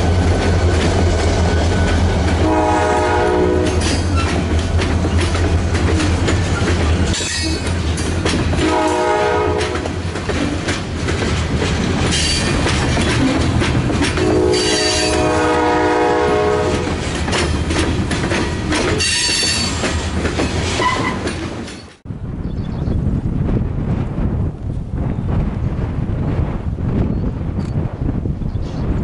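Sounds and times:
freight train wheels clattering: 0:00.0 - 0:22.0
locomotive horn: 0:02.4 - 0:04.3, 0:08.6 - 0:10.0, 0:14.2 - 0:17.0
wheels squealing: 0:20.5 - 0:22.0.

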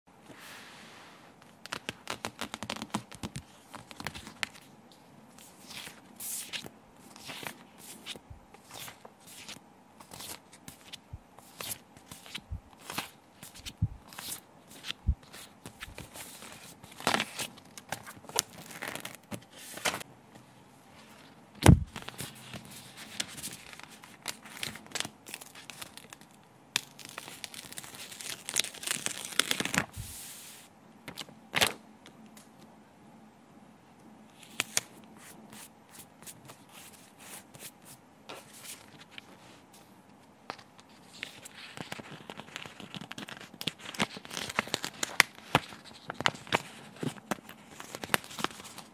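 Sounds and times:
paper rustling: 0:05.4 - 0:20.0, 0:21.0 - 0:26.3, 0:26.9 - 0:31.8, 0:40.5 - 0:48.9.

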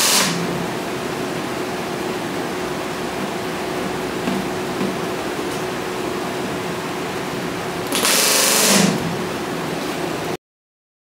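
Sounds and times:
pneumatic rivet gun hammering: 0:00.0 - 0:00.5, 0:07.8 - 0:09.1
steady shop hiss: 0:00.0 - 0:10.4.

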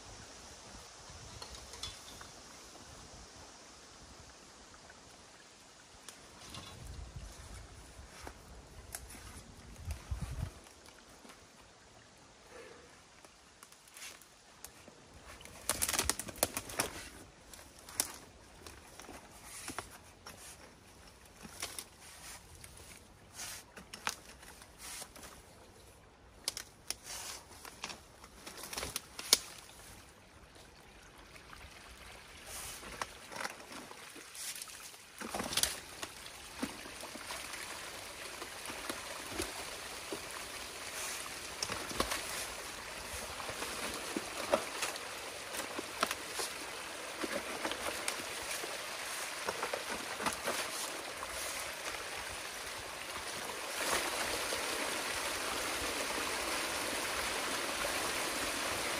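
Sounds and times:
sticks cracking and knocking: 0:15.6 - 0:17.0.

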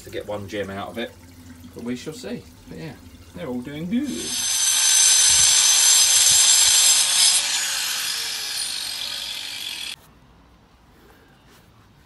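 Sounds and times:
angle grinder cutting concrete: 0:04.1 - 0:10.0.

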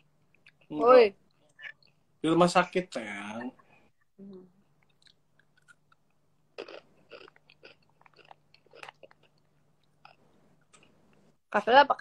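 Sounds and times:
crunchy snack being chewed: 0:04.9 - 0:10.2.

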